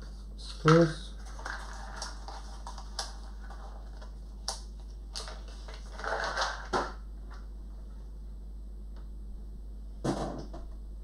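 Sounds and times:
rustling clatter of parts: 5.2 - 6.8.

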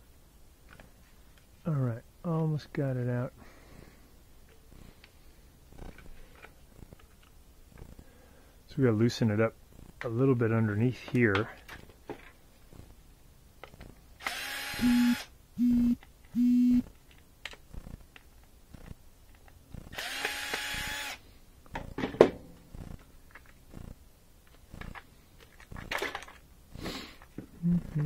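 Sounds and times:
cordless drill motor: 14.2 - 16.8, 19.8 - 21.2
metal parts clicking and clattering: 24.5 - 26.5.

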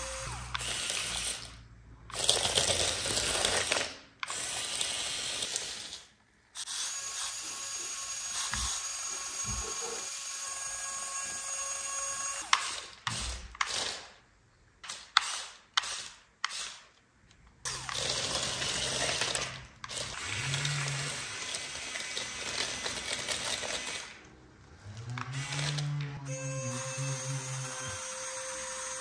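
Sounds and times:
small mechanism whirring: 17.6 - 29.0.

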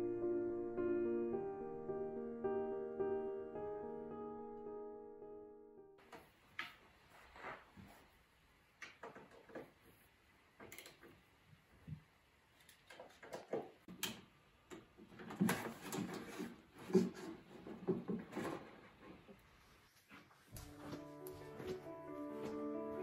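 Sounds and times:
piano music: 0.0 - 6.0, 20.6 - 23.0.

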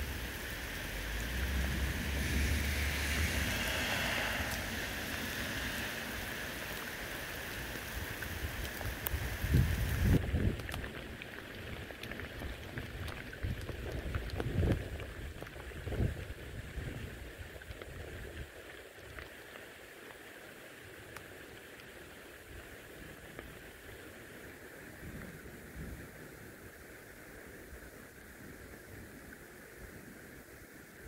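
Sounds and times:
raindrops ticking: 0.0 - 20.3
rain hissing on wet road: 0.0 - 31.0.

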